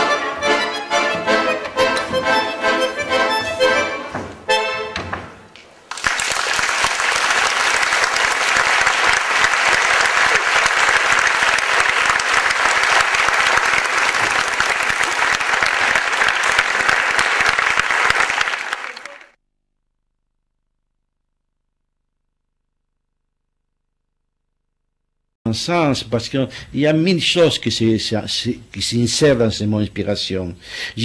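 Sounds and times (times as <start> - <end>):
crowd applauding: 5.9 - 19.4.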